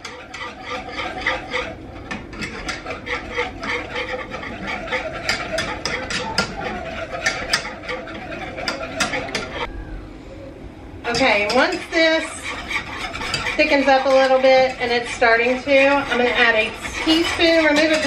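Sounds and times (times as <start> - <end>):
whisk scraping metal saucepan: 0.0 - 9.7, 11.1 - 18.0.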